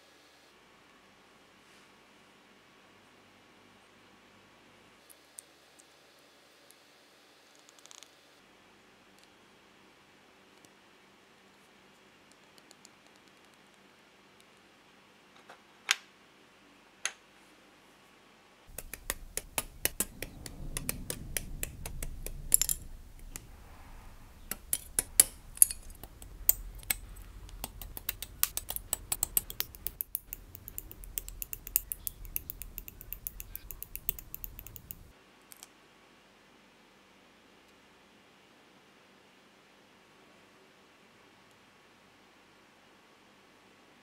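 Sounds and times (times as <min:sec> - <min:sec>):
low rumble: 0:18.7 - 0:35.1.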